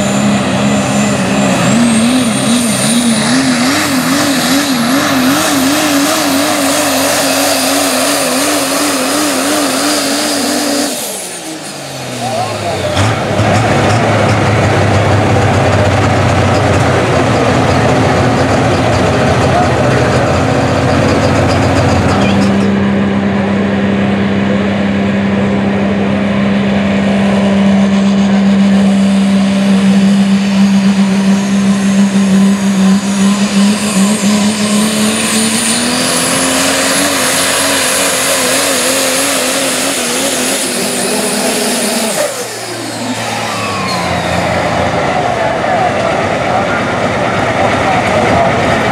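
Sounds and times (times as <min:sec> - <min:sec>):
diesel truck engine at full throttle: 0:00.0 - 0:48.9
turbocharger whistle: 0:27.9 - 0:46.8.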